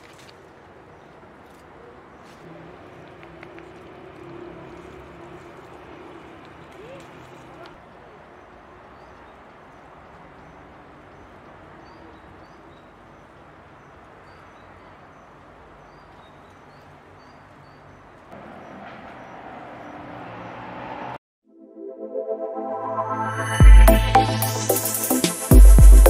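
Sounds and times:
leaves rustling in wicker basket: 0.0 - 18.3.

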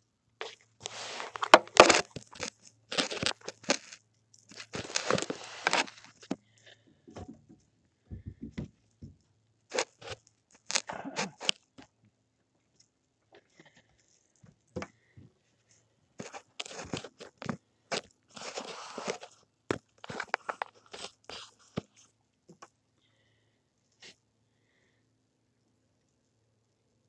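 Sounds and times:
handling noise on phone microphone: 0.4 - 11.6, 16.2 - 22.7.

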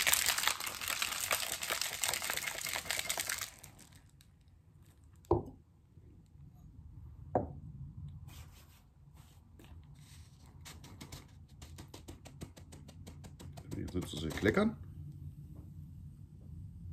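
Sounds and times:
ice rattling in cocktail shaker: 0.0 - 4.2.

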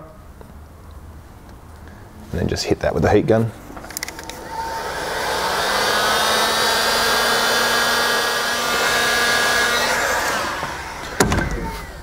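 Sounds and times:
heat gun blowing: 3.9 - 12.0.

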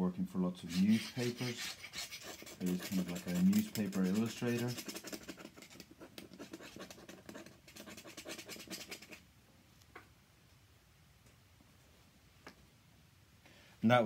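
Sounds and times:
pen nib scratching on paper: 0.7 - 9.2.

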